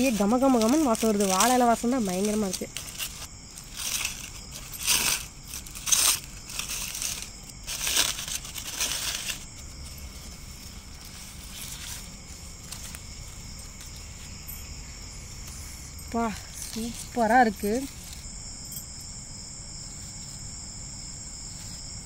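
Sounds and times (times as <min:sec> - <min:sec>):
aluminium foil crinkling and tearing: 0:00.0 - 0:14.0
high insect chirring: 0:00.0 - 0:22.0.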